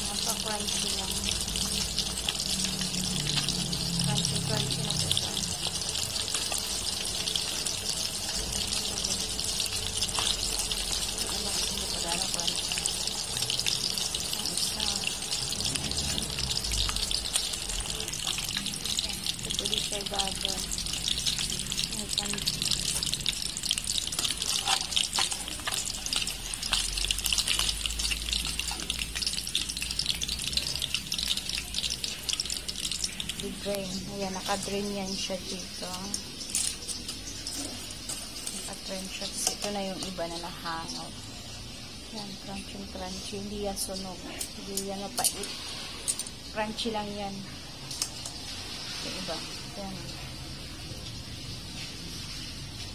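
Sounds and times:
fish deep-frying in oil: 0:00.0 - 0:52.9.

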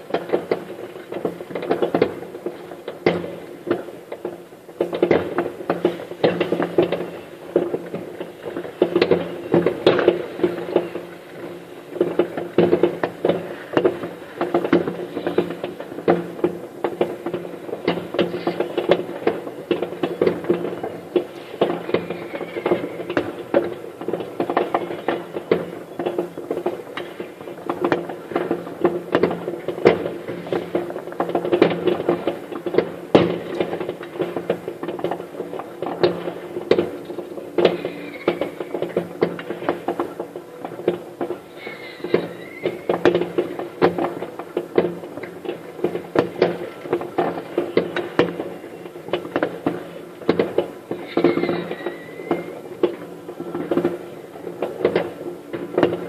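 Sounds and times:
fireworks crackling and banging: 0:00.0 - 0:56.0
firework whistles: 0:08.9 - 0:11.7, 0:19.6 - 0:23.5, 0:37.6 - 0:39.3, 0:41.5 - 0:43.6, 0:50.9 - 0:52.7.

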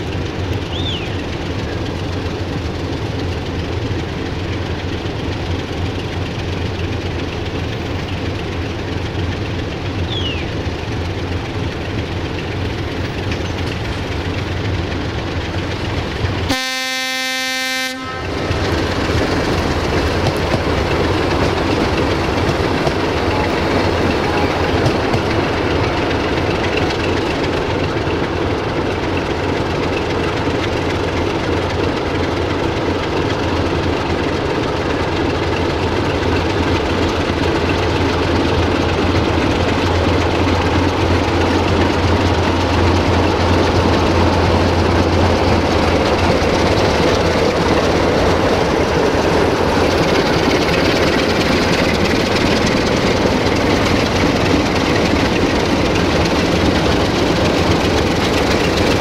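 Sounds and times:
diesel locomotive engine drone: 0:00.0 - 0:59.0.

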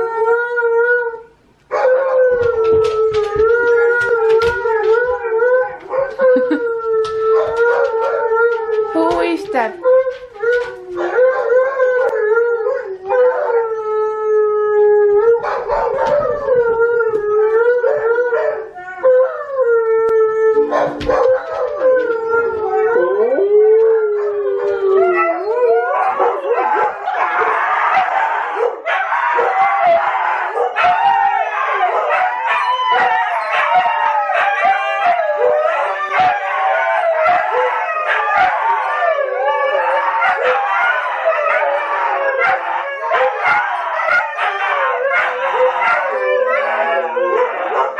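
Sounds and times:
huskies howling: 0:00.0 - 0:09.0, 0:09.8 - 0:47.9.

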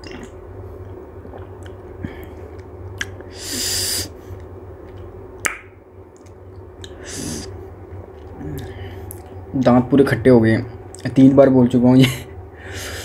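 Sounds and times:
man sucking air through teeth: 0:03.3 - 0:04.1, 0:06.9 - 0:07.5.

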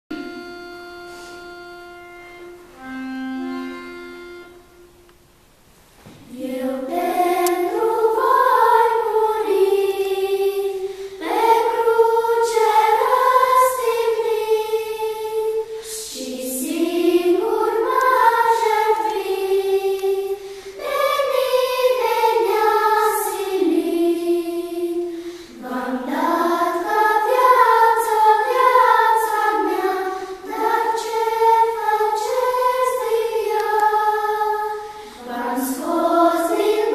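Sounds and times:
held instrumental notes: 0:00.1 - 0:05.6
girls singing together: 0:06.2 - 0:36.9.

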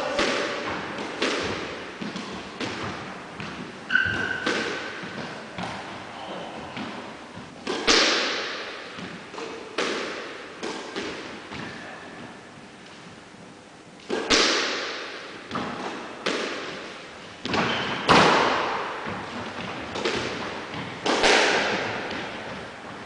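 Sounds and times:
squash ball cracking off walls: 0:07.6 - 0:08.8, 0:14.1 - 0:16.8, 0:17.4 - 0:19.2, 0:19.9 - 0:22.3.

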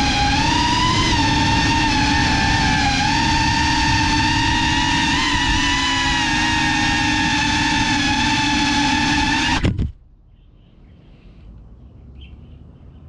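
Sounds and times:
drone propellers whining: 0:00.0 - 0:10.0.

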